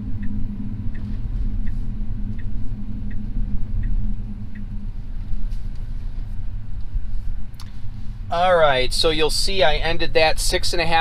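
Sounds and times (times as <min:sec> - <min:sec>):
turn signal ticking: 0:00.0 - 0:04.9
low road rumble and hum: 0:00.0 - 0:11.0.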